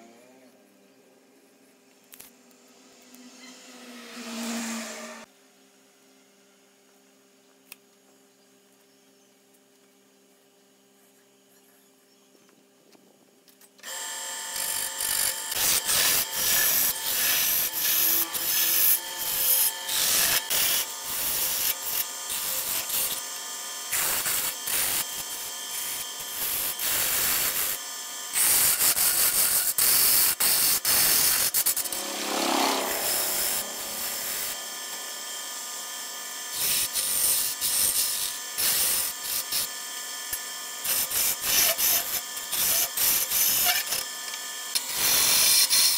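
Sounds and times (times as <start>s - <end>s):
chisel cutting wood on lathe: 13.8s - 35.2s, 36.5s - 39.7s, 40.8s - 44.0s.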